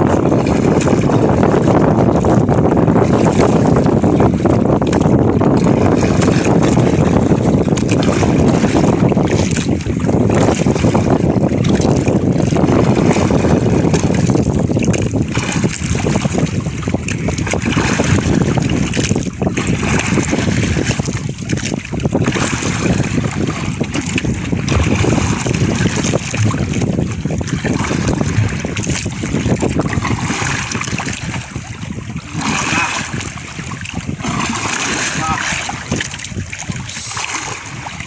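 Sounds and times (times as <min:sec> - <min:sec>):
waves washing against boat: 0:00.0 - 0:38.0
wind on microphone: 0:00.0 - 0:38.0.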